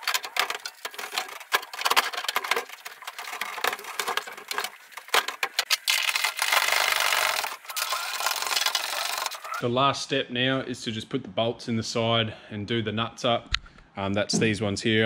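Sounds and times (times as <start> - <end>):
metallic knocks and clatter: 0.0 - 5.7.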